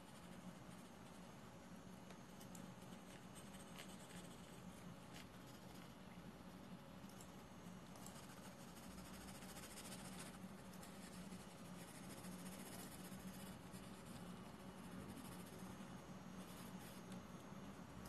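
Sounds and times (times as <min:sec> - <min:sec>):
low steady hum: 0:00.0 - 0:18.0
pencil scratching on paper: 0:08.0 - 0:15.8.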